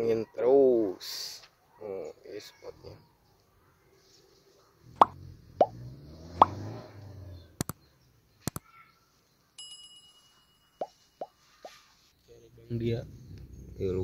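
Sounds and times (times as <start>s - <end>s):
mouse clicks: 8.4s - 8.6s
bell chime: 9.6s - 11.2s.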